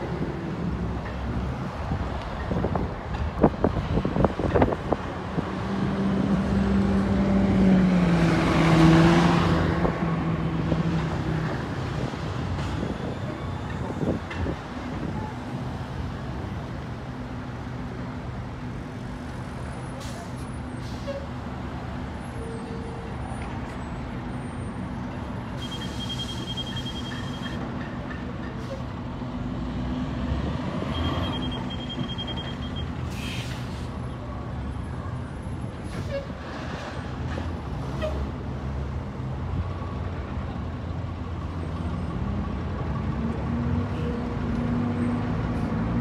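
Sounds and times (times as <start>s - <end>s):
bus diesel engines pulling away: 0.0s - 46.0s
traffic noise: 0.0s - 46.0s
air brakes hissing: 19.9s - 21.4s, 25.6s - 27.6s, 33.0s - 34.0s
high beeping: 30.9s - 33.0s.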